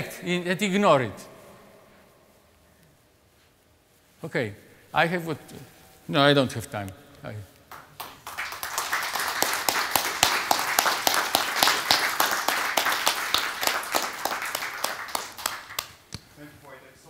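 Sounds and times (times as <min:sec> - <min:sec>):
audience applauding: 0:07.7 - 0:16.1.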